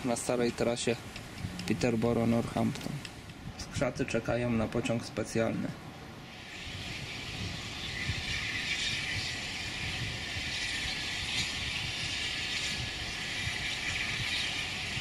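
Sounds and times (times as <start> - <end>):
low uneven rumble: 0.0 - 11.8
train hissing: 6.2 - 15.0.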